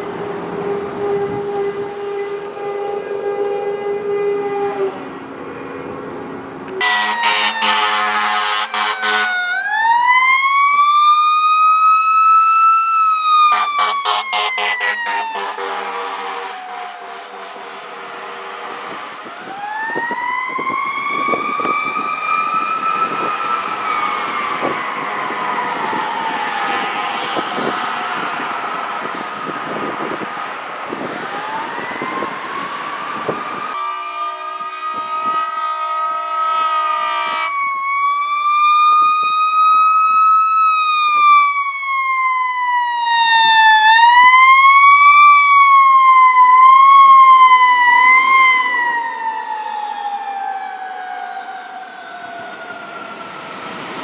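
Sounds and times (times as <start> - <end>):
fire truck siren wailing: 0.0 - 54.0
air horn blasts: 0.6 - 6.0, 6.7 - 9.4, 13.5 - 19.2, 33.8 - 37.6.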